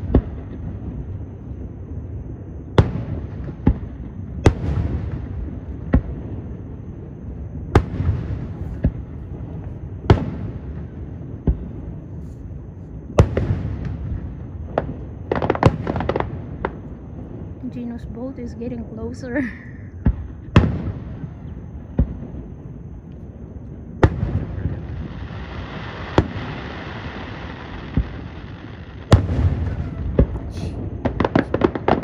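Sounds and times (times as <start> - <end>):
firework shells booming: 7.7 - 12.3, 13.1 - 17.4, 19.9 - 22.8, 23.9 - 32.0
firework crackling: 7.7 - 32.0.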